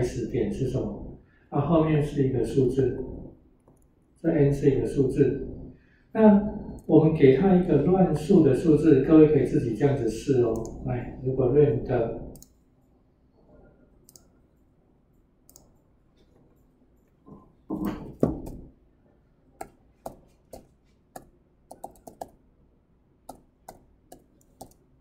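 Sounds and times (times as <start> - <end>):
computer keyboard typing: 19.6 - 22.4, 23.3 - 24.9.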